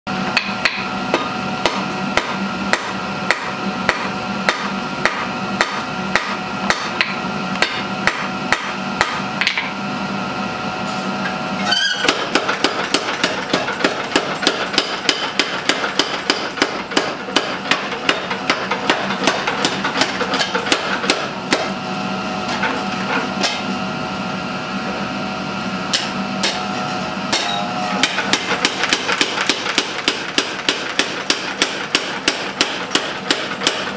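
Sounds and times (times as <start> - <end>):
power hammer pounding steel: 0.2 - 9.7, 12.0 - 21.8, 25.9 - 26.7, 27.3 - 33.9
hammer striking steel on anvil: 0.3 - 9.8, 12.0 - 21.8, 25.9 - 26.6, 27.3 - 33.9.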